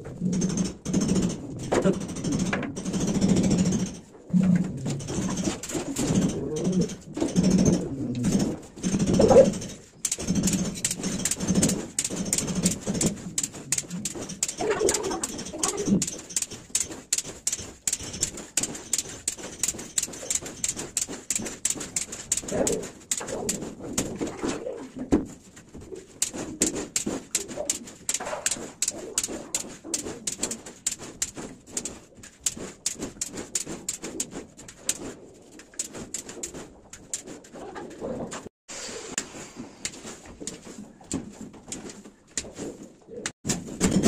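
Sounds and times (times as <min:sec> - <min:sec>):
rapid sharp clicks: 0:00.2 - 0:04.0, 0:04.9 - 0:24.5, 0:26.1 - 0:37.6.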